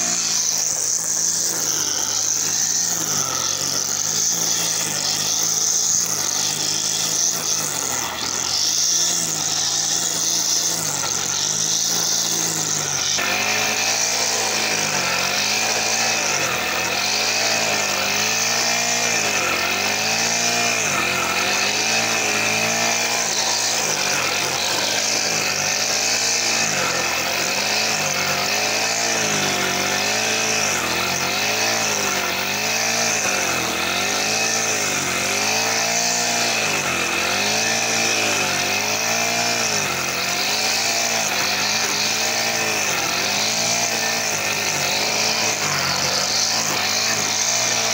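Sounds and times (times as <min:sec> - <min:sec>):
brush cutter mowing grass: 0:00.0 - 0:47.9.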